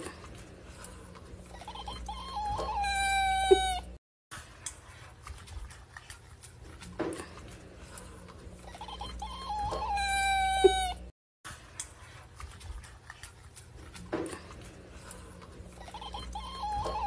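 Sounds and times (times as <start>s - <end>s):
cat yowling: 1.7s - 4.0s, 9.2s - 11.1s, 16.0s - 17.0s.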